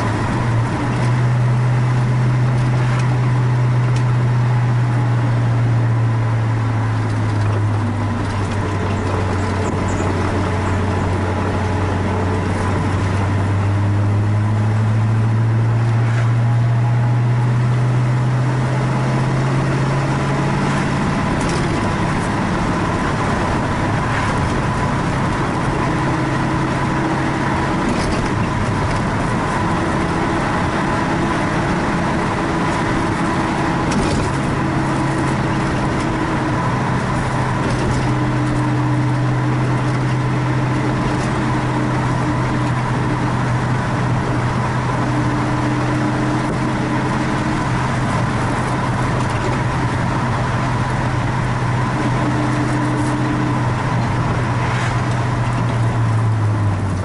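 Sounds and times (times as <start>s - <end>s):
car engine accelerating: 0.0s - 57.0s
road noise: 0.0s - 57.0s.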